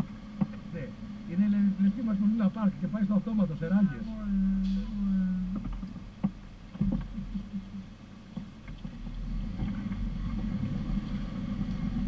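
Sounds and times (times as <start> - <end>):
off-road vehicle engine running: 0.0 - 12.0
suspension knocks: 4.7 - 12.0.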